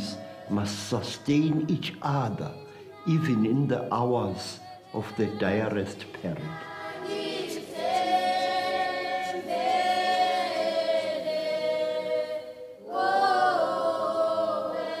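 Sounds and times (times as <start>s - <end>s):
choir singing unaccompanied: 0.0s - 15.0s.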